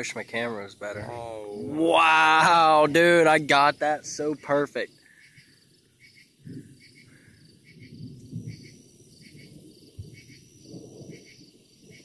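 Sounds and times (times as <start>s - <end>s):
crickets chirping: 0.0s - 12.0s
thunder rumbling: 0.7s - 4.4s, 7.6s - 12.0s.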